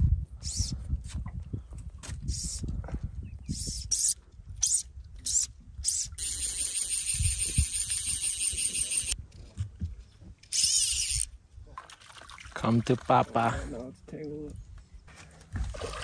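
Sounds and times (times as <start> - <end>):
fishing reel ratchet buzzing: 4.6 - 9.2, 10.5 - 11.3.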